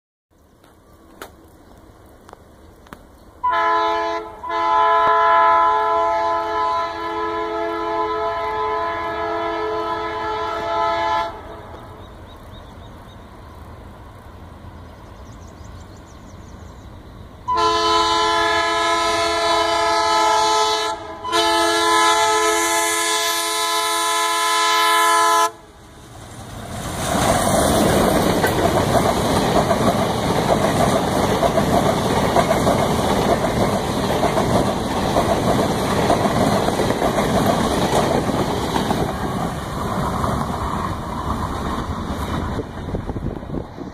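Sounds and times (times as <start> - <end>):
train passing on track: 0.4 - 43.9
locomotive multi-tone horn: 3.4 - 11.8, 17.5 - 25.8.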